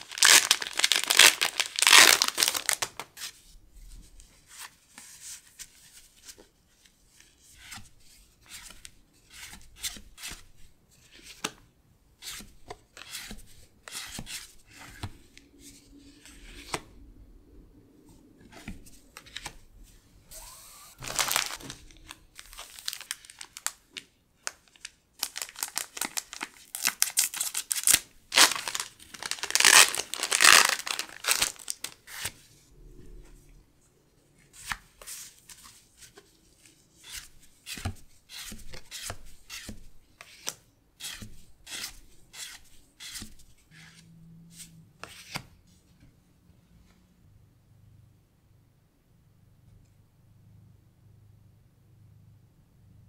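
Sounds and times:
foil wrapper crinkling and tearing: 0:00.0 - 0:03.0, 0:21.0 - 0:23.8, 0:24.4 - 0:32.0.

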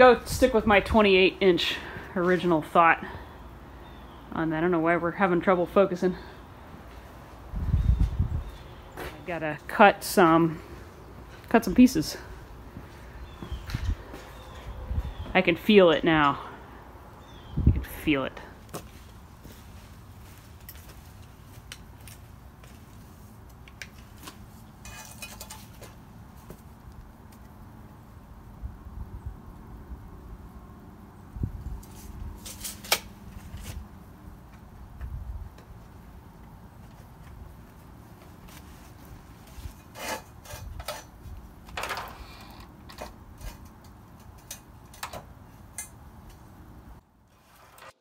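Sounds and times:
metal scraping: 0:24.8 - 0:25.9.

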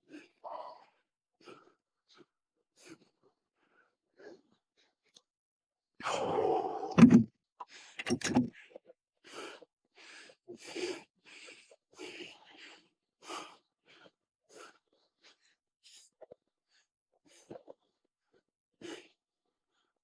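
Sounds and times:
man breathing hard: 0:08.6 - 0:16.1.

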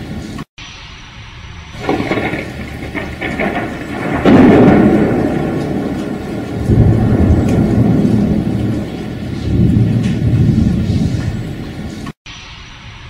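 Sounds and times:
thunder rumbling: 0:00.8 - 0:11.9
steady rain: 0:01.7 - 0:12.1.

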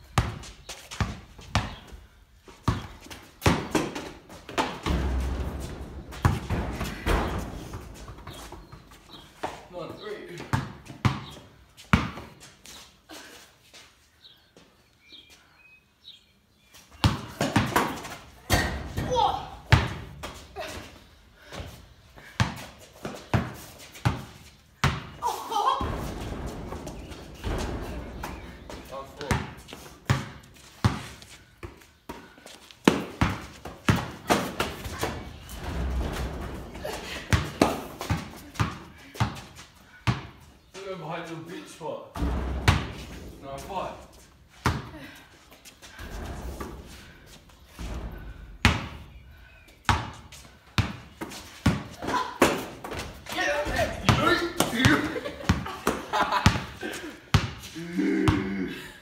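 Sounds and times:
basketball bouncing: 0:02.6 - 0:08.8, 0:17.0 - 0:20.4, 0:21.6 - 0:25.2, 0:25.8 - 0:40.4, 0:42.2 - 0:43.4, 0:44.5 - 0:44.9, 0:47.8 - 0:49.0, 0:49.8 - 0:57.7.

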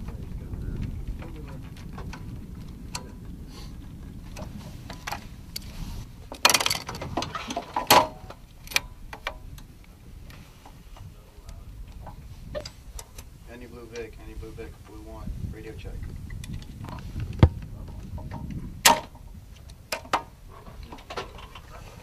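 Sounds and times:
machine gun metal clicks: 0:06.3 - 0:09.7.

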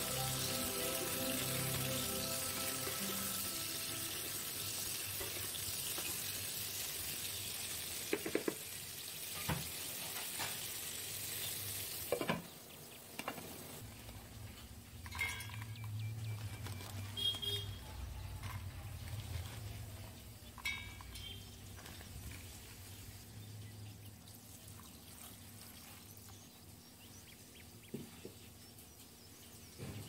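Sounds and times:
food sizzling in oil: 0:00.0 - 0:12.6.

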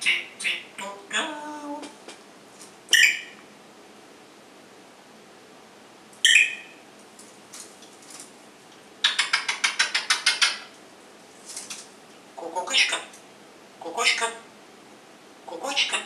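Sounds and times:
parrot fast sharp beeps: 0:02.9 - 0:03.4, 0:06.2 - 0:06.8
parrot whistle: 0:02.9 - 0:03.4, 0:06.2 - 0:06.8.

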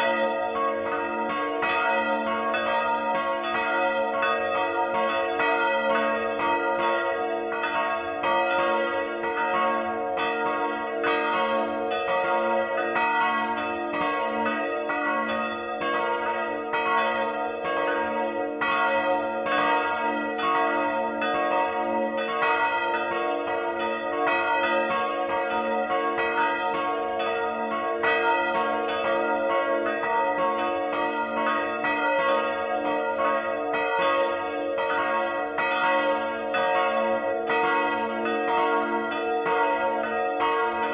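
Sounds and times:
church bells ringing: 0:00.0 - 0:40.9.

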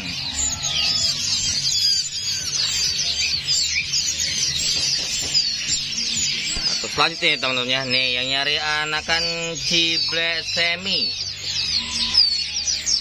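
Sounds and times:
songbirds chirping and twittering: 0:00.0 - 0:13.0.

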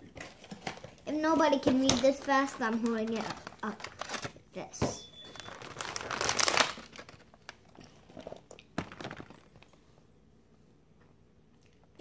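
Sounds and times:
cardboard boxes rustling: 0:00.2 - 0:07.2.

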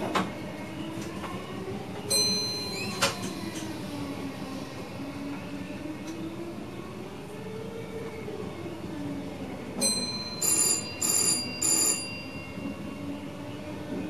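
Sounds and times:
electric train hum: 0:00.0 - 0:14.0
electronic ringing signal: 0:09.9 - 0:12.7.

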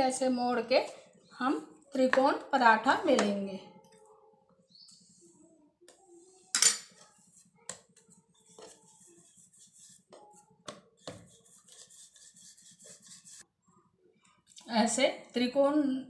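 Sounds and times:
rolling pin on dough: 0:07.0 - 0:13.4.

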